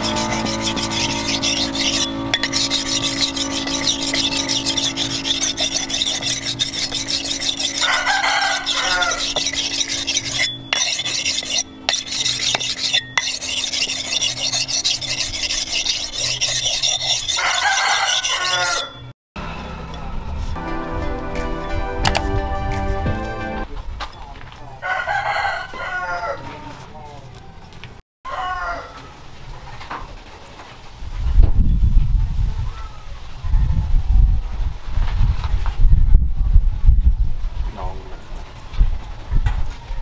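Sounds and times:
blade scraping on sharpening stone: 0:00.0 - 0:19.1, 0:22.0 - 0:23.0
rooster crowing: 0:07.8 - 0:09.4, 0:17.4 - 0:19.0, 0:24.8 - 0:26.9, 0:28.3 - 0:29.2.

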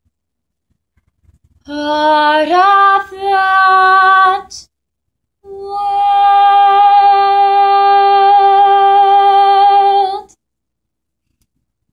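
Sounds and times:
woman singing a long note: 0:01.7 - 0:04.6, 0:05.4 - 0:10.3.

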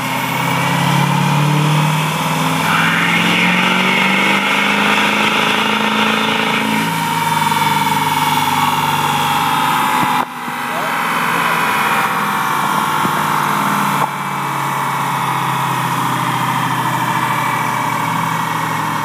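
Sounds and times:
diesel truck engine running loud: 0:00.0 - 0:19.0
high whine: 0:02.0 - 0:12.4.

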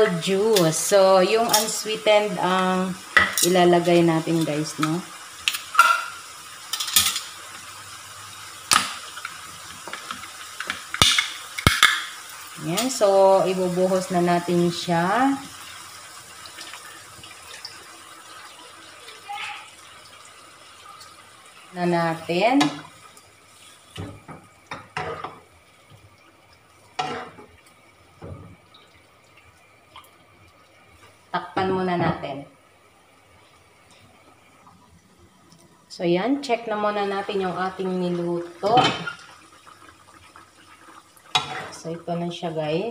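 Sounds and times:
spatula stirring food in wok: 0:22.6 - 0:25.5, 0:26.9 - 0:27.6, 0:41.2 - 0:41.8.

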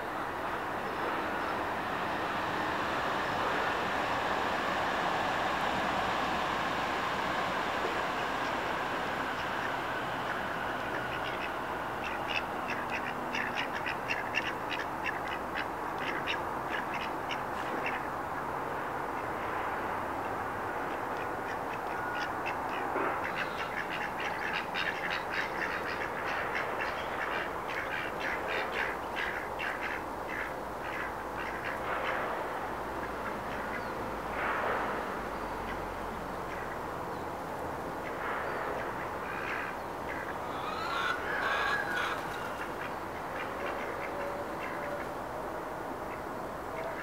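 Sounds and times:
steady background noise: 0:00.0 - 0:47.0
drakes giving raspy calls: 0:00.8 - 0:18.5, 0:20.3 - 0:32.2, 0:38.0 - 0:45.2.

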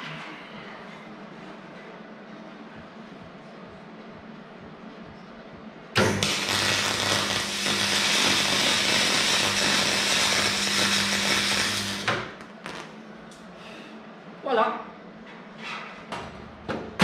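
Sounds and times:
arc welding crackling hiss: 0:06.0 - 0:13.0.

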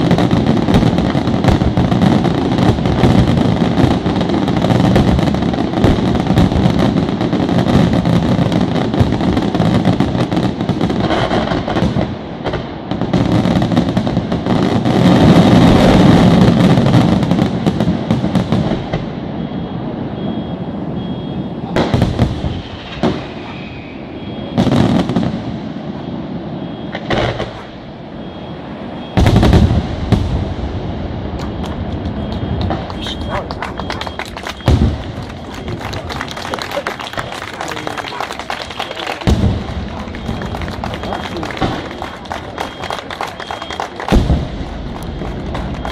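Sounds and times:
firework shells bursting: 0:31.4 - 0:45.9.

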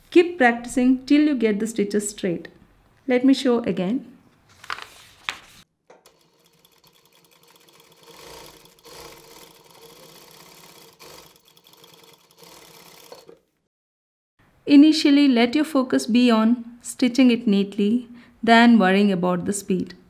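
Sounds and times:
sewing machine needle ticking: 0:06.0 - 0:13.4.

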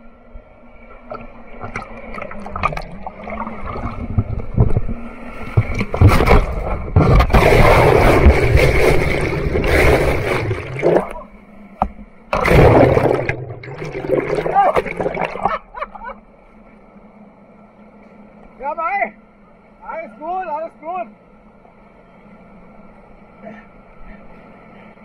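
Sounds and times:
underwater gurgling: 0:00.9 - 0:15.9.

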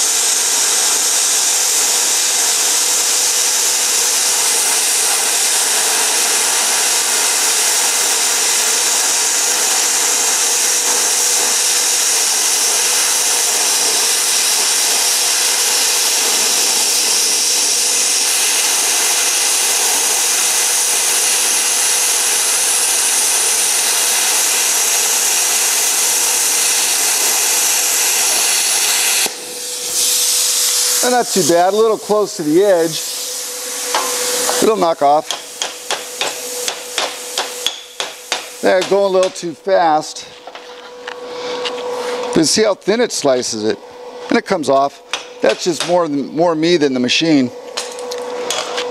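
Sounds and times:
plasma cutter hissing: 0:00.0 - 0:40.4, 0:42.1 - 0:47.5.

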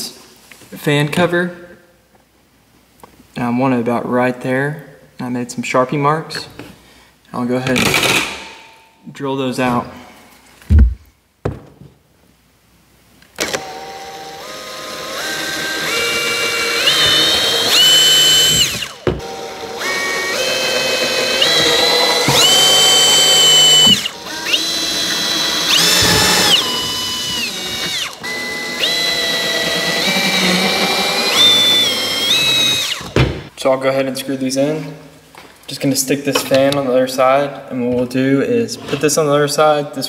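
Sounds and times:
cordless drill boring through plastic: 0:13.4 - 0:33.2.

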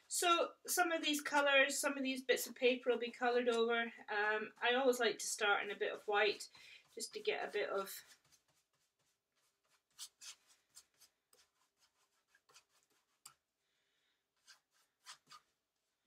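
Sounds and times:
paintbrush strokes on paper: 0:02.4 - 0:13.5, 0:14.3 - 0:15.6.

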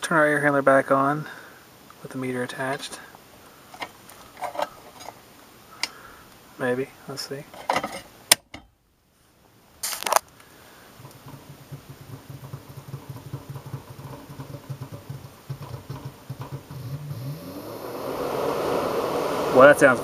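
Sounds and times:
blower motor humming and whining: 0:16.8 - 0:20.0
rush of air: 0:17.2 - 0:20.0.

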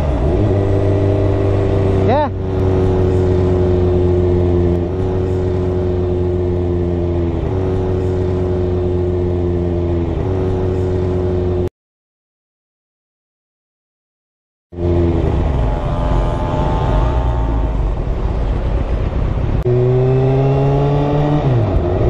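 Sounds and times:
motorcycle engine cruising: 0:00.0 - 0:11.7, 0:14.7 - 0:22.0
wind noise: 0:14.9 - 0:22.0.

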